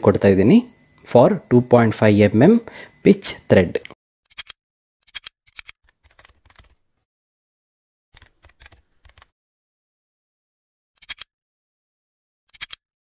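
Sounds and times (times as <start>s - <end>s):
computer mouse clicks: 4.3s - 6.8s, 8.2s - 9.3s, 11.0s - 11.3s, 12.5s - 12.8s
keyboard typing: 4.3s - 6.8s, 8.2s - 9.3s.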